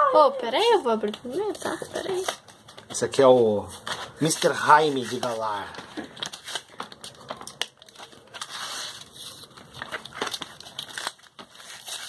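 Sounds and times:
plastic and cardboard packaging crinkling: 0.6s - 12.0s
sharp cracks of packaging: 5.7s - 12.0s.

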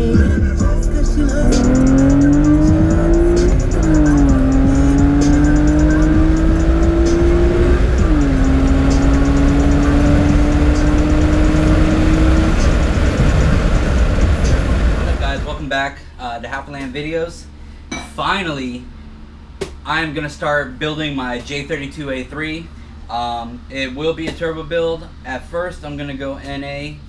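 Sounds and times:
car engine accelerating: 0.0s - 15.6s
faint music: 0.0s - 27.0s.

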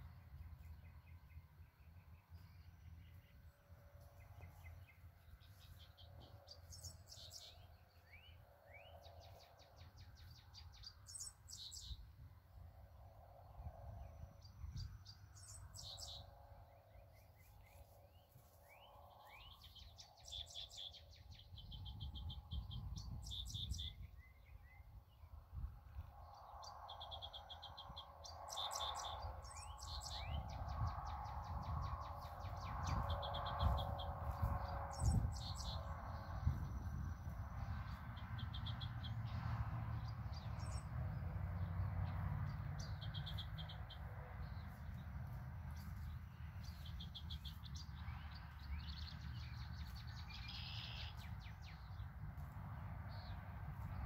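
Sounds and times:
birds singing trills: 0.0s - 12.2s, 13.4s - 52.1s
low rumble: 25.0s - 54.0s.

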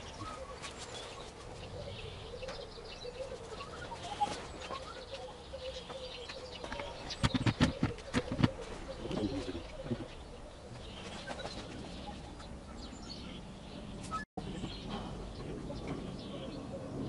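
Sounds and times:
bird chirps: 0.0s - 17.0s
sharp knocks and clatter: 7.1s - 8.6s.

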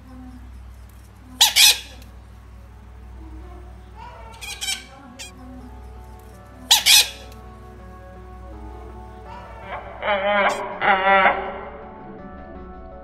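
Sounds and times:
quiet background music: 0.0s - 13.0s
parakeet squawking: 1.4s - 2.0s, 4.0s - 5.3s, 6.6s - 7.4s, 9.3s - 10.6s.

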